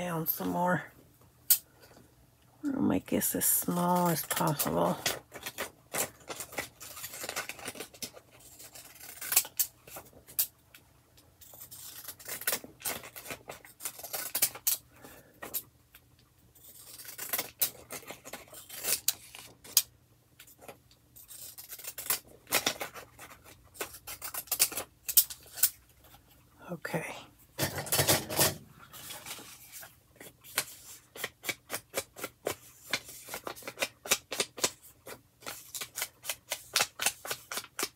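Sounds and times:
scissors snipping paper card: 4.0s - 10.5s, 11.4s - 14.8s, 21.3s - 25.8s, 30.2s - 37.9s.

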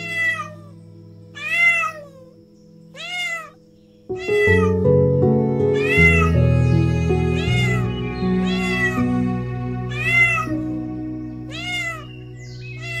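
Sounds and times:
cat meowing: 0.0s - 0.7s, 1.4s - 4.9s, 5.7s - 7.9s, 8.5s - 9.1s, 9.9s - 10.7s, 11.5s - 12.2s, 12.8s - 13.0s
music with sustained chords: 0.0s - 13.0s.

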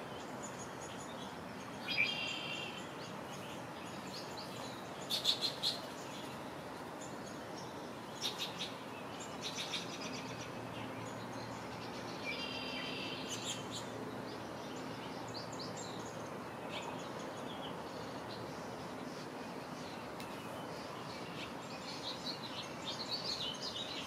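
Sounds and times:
outdoor background hiss: 0.0s - 24.0s
birds chirping and calling: 0.1s - 24.0s.

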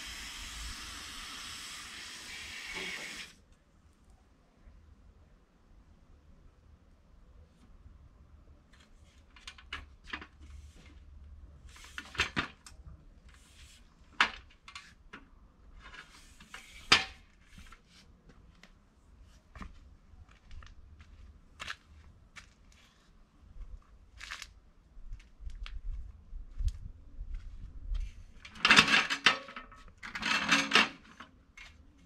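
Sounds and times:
clicking and scraping of hard objects: 8.7s - 11.0s, 11.6s - 18.0s, 28.0s - 32.0s.

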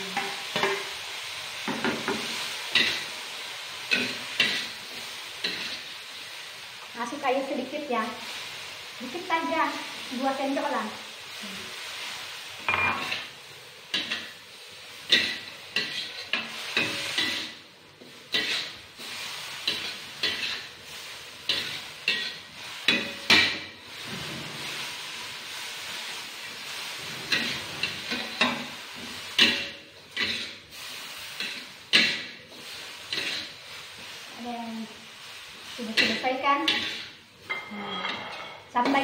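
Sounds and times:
food sizzling: 0.0s - 39.0s
metal spatula scraping a wok: 0.1s - 6.1s, 15.0s - 39.0s.

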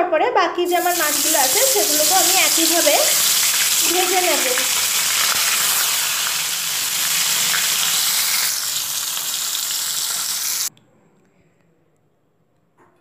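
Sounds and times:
fish sizzling in hot oil: 0.7s - 10.7s.

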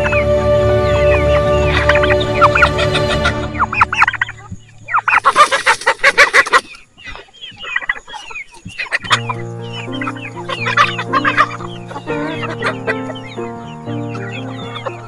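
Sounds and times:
background music: 0.0s - 5.4s, 9.0s - 15.0s
chickens clucking and squawking: 0.0s - 15.0s.

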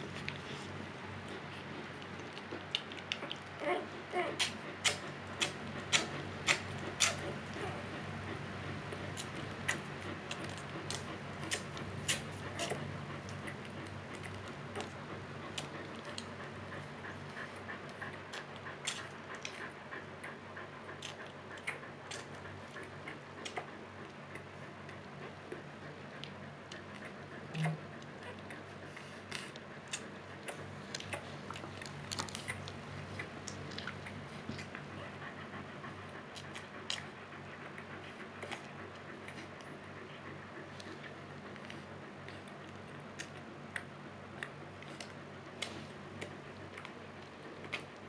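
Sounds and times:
steady low hum: 0.0s - 48.0s
puppy suckling wet clicks: 1.2s - 7.7s, 9.0s - 16.5s, 17.8s - 20.4s, 21.0s - 25.6s, 29.2s - 34.8s, 40.6s - 48.0s.

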